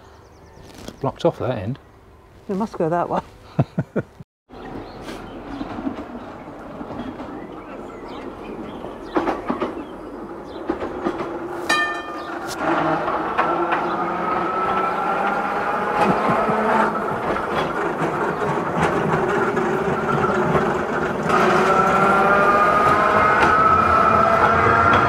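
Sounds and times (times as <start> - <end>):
electric tram whine: 4.5 - 25.0
wheels rumbling on rail: 4.5 - 25.0
tram clicks: 4.6 - 25.0.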